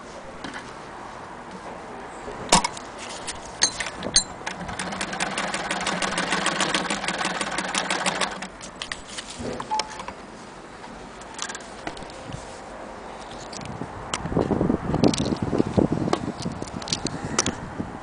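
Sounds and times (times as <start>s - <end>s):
sewing machine clicking: 4.4s - 8.5s.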